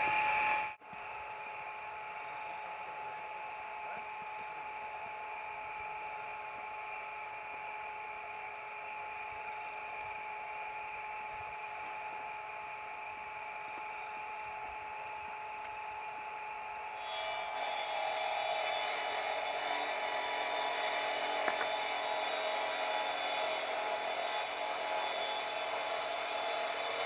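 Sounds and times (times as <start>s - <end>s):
power saw cutting: 17.0s - 27.0s.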